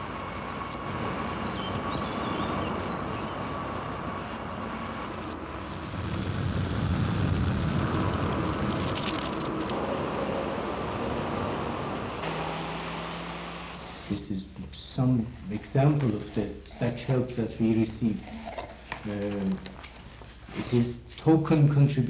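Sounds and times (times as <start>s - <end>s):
car driving past: 9.2s - 14.1s.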